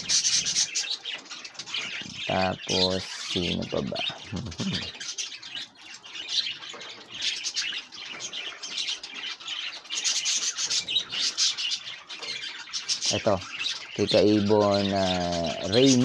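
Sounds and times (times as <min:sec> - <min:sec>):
budgerigars chirping and warbling: 0:00.0 - 0:16.0.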